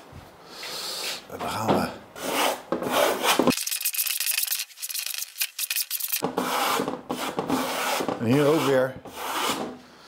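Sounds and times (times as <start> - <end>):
trowel scraping plaster on wood: 2.2 - 3.5, 6.2 - 9.7.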